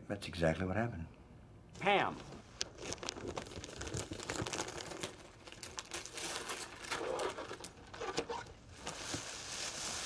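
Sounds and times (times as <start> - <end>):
wrapping paper crinkling and tearing: 2.4 - 10.0.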